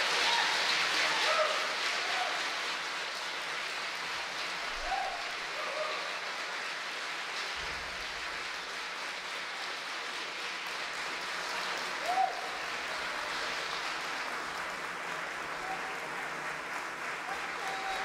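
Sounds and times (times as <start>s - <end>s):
audience applauding: 0.0s - 18.0s.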